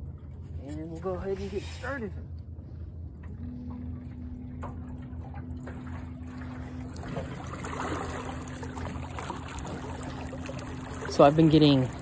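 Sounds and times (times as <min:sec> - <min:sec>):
water splashing and churning: 0:03.1 - 0:12.0.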